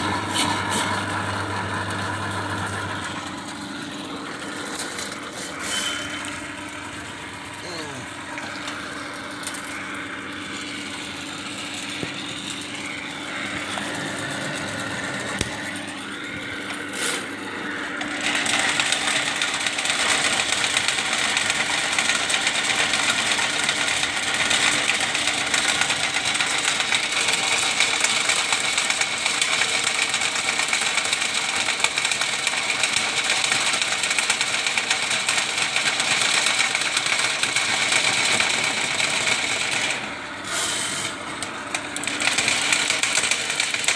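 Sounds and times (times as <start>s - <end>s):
drain-cleaning machine running: 0.0s - 43.9s
steel cable scraping and rattling: 0.3s - 1.0s, 4.4s - 6.5s, 16.7s - 17.3s.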